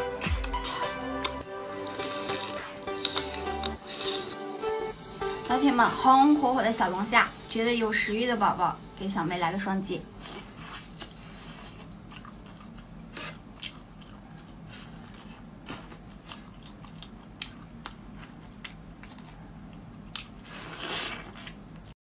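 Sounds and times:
chewing: 0.2 - 4.4, 10.2 - 21.9.

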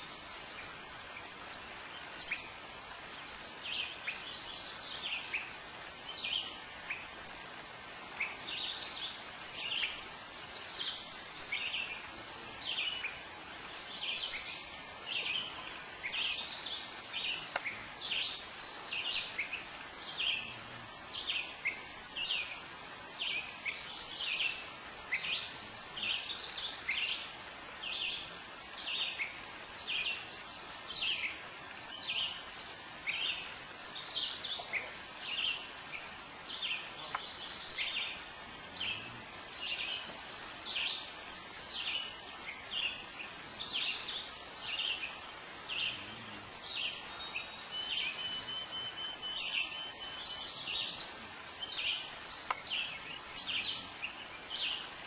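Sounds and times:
faint steady hiss: 0.0 - 55.0
songbirds chirping: 0.0 - 55.0.

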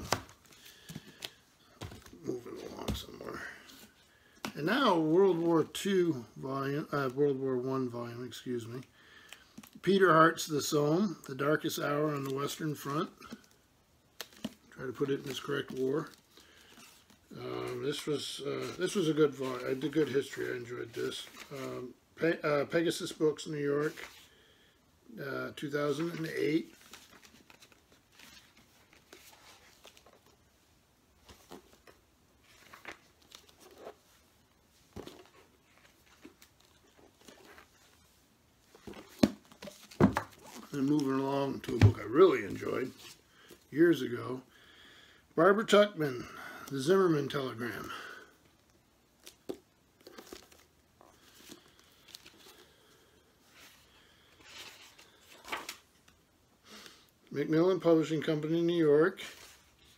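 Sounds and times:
book pages rustling: 0.0 - 5.5, 12.1 - 21.7, 23.8 - 24.4, 25.8 - 43.7, 47.6 - 57.0, 59.2 - 59.9.

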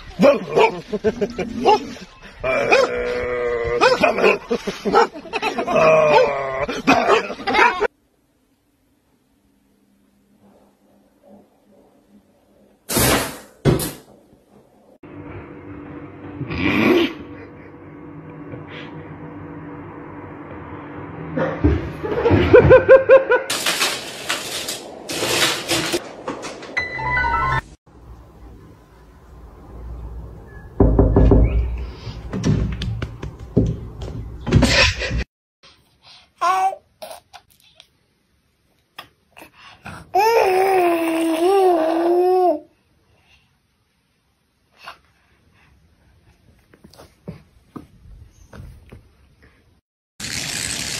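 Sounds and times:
person laughing: 0.5 - 7.9.

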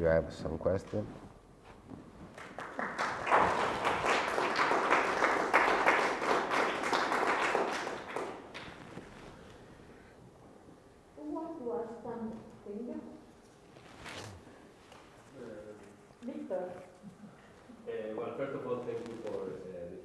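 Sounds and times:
audience applauding: 2.4 - 8.9.

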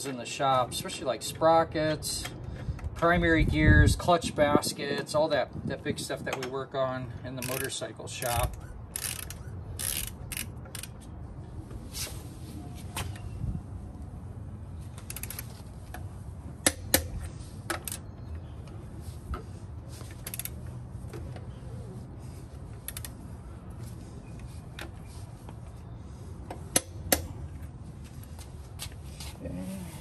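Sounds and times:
torque wrench clicking: 7.4 - 10.9.

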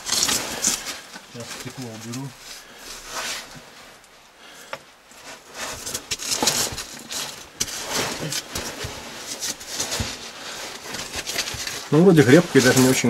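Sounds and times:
clothes scraping and rustling on rock: 0.0 - 13.0.

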